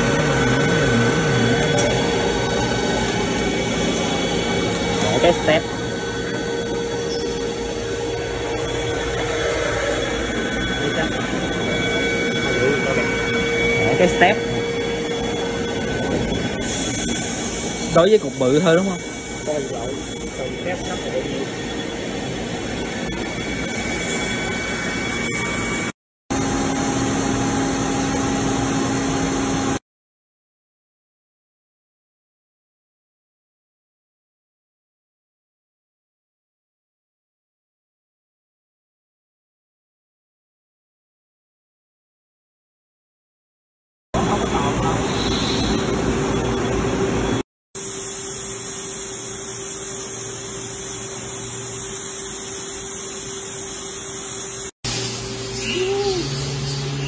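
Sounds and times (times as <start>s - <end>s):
machine running low hum: 0.0s - 29.8s
milling machine cutting with coolant: 0.0s - 29.8s.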